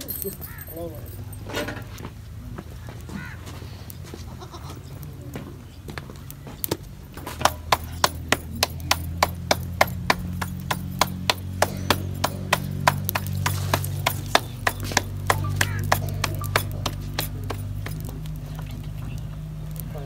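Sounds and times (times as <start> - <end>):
dough slapped between palms: 7.2 - 18.2.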